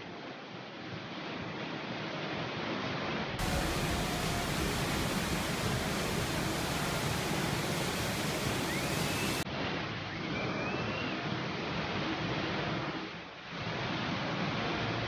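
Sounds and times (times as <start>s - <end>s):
faint high gliding tone: 3.4s - 9.4s
water rushing: 3.4s - 9.4s.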